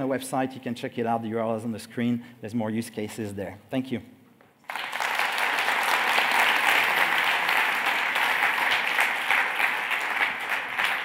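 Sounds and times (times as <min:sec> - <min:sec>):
audience applause: 0:04.6 - 0:11.0.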